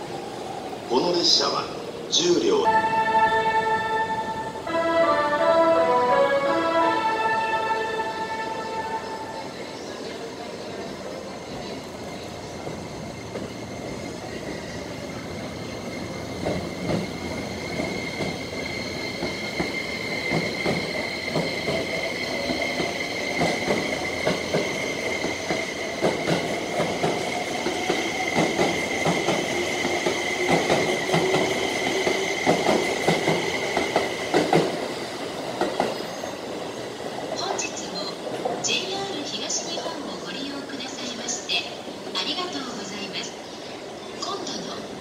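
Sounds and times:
high wheel squeal: 0:13.2 - 0:26.0
train wheels clacking over joints: 0:16.4 - 0:34.8.

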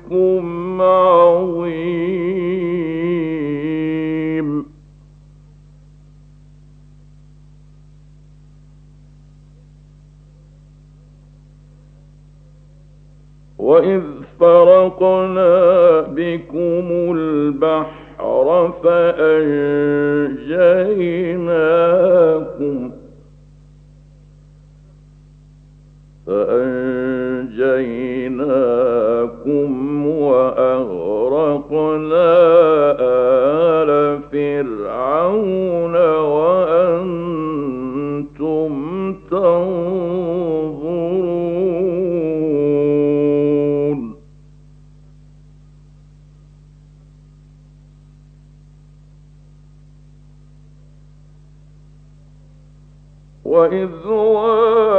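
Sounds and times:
man chanting recitation: 0:00.0 - 0:04.8, 0:13.6 - 0:23.2, 0:26.3 - 0:44.2, 0:53.4 - 0:54.9
faint steady hum: 0:00.0 - 0:54.9.

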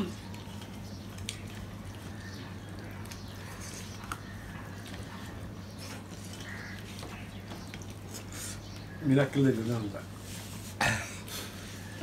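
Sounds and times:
faint chewing: 0:00.0 - 0:09.0.

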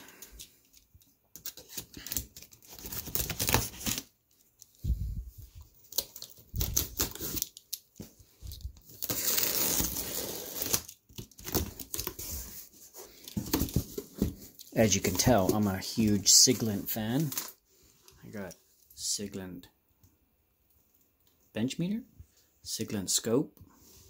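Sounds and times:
tape ripping: 0:08.8 - 0:12.1.

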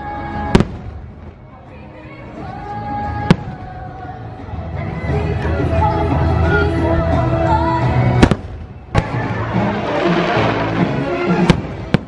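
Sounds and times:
fireworks bangs: 0:00.5 - 0:01.4, 0:08.2 - 0:12.0
show music: 0:03.5 - 0:12.0
fireworks crackling: 0:08.2 - 0:12.0.

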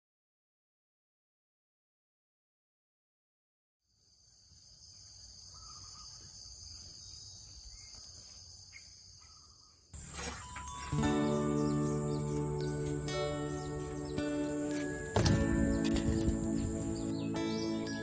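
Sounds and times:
high insect chorus: 0:03.9 - 0:18.0.

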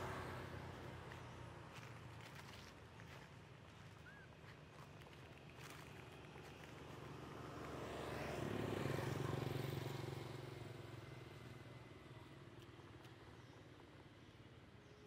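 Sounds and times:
vehicle passing by: 0:00.0 - 0:02.7, 0:05.5 - 0:12.3.

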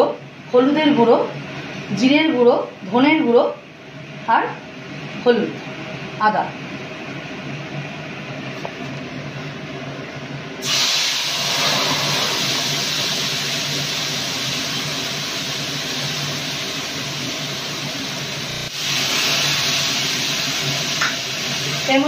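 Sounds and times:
hot oil sizzling: 0:10.6 - 0:22.0.

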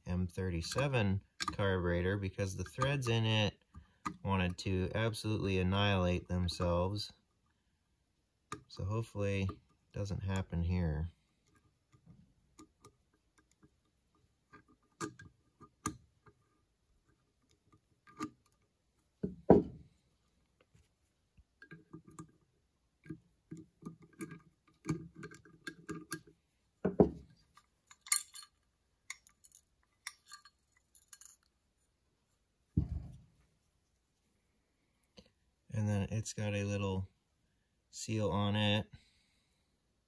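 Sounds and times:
high metallic rattle: 0:27.9 - 0:31.5.

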